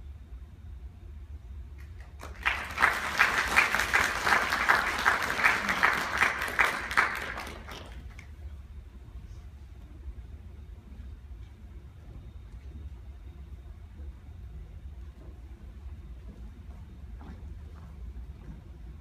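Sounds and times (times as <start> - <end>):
steady low hum: 0.0 - 19.0
audience clapping: 1.8 - 8.4.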